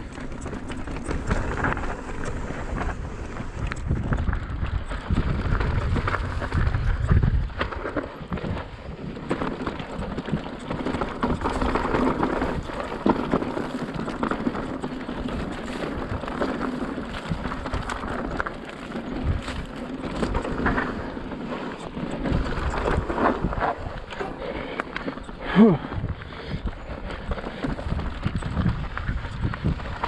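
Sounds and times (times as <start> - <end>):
bike clicks and rattles: 0.0 - 30.0
bike tyres rushing on dirt: 0.0 - 30.0
grass swishing against bike: 11.4 - 23.8.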